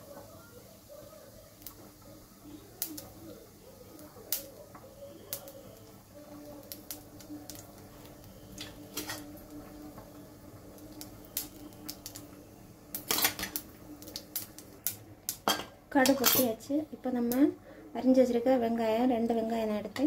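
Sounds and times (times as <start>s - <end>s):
mustard seeds popping in oil: 1.5s - 16.6s.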